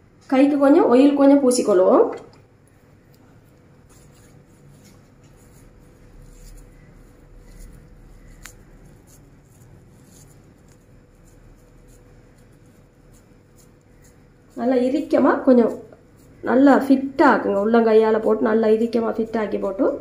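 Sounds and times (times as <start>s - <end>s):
hands pressing food mixture: 3.0s - 18.9s.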